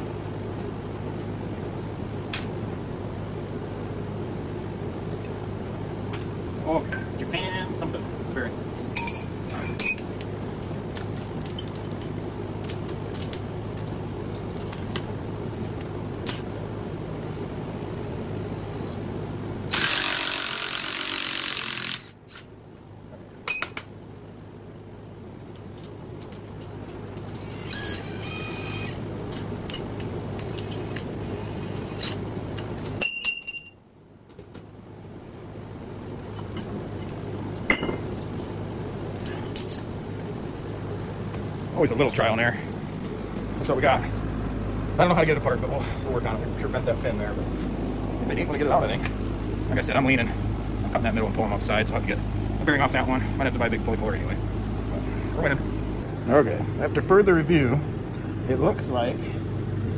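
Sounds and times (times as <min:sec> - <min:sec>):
steady low rumble: 0:00.0 - 0:19.9, 0:33.8 - 0:59.9
steady low hum: 0:00.0 - 0:59.9
metal tools clanking on shaft: 0:08.9 - 0:15.2
metallic ringing squeal: 0:09.0 - 0:10.1, 0:27.3 - 0:29.0
light metal clinks and jangles: 0:09.0 - 0:15.2.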